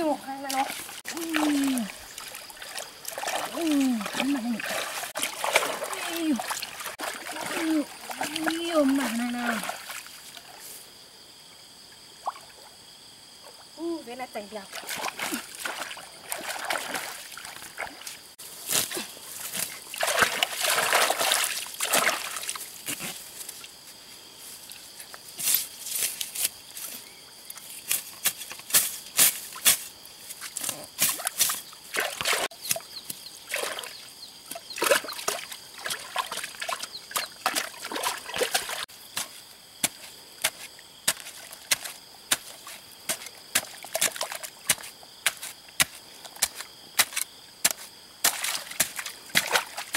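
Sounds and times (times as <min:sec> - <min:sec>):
stick knocking and thudding in mud: 0:00.0 - 0:09.8, 0:18.7 - 0:23.2, 0:27.8 - 0:33.9, 0:34.5 - 0:49.9
water splashing and sloshing: 0:00.0 - 0:10.8, 0:13.5 - 0:26.3, 0:27.5 - 0:49.9.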